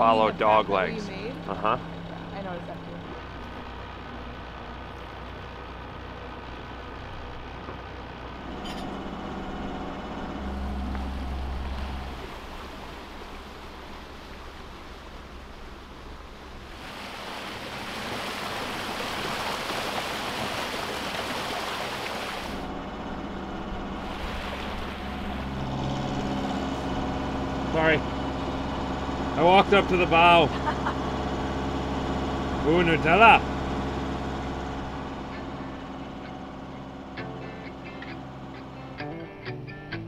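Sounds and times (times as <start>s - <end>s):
low engine drone: 0.0s - 40.0s
water rushing along a hull: 9.0s - 37.1s.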